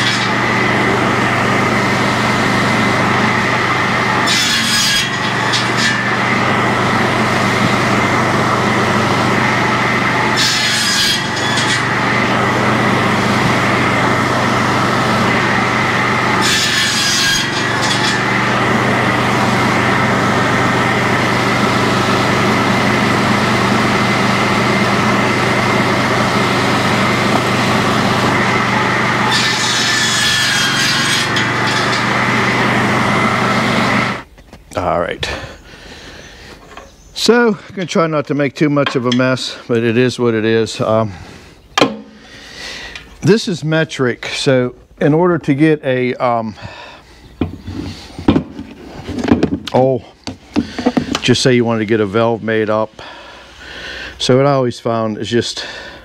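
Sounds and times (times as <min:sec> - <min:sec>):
circular saw ripping boards: 0:00.0 - 0:34.6, 0:47.4 - 0:51.5
machine humming: 0:00.0 - 0:37.7.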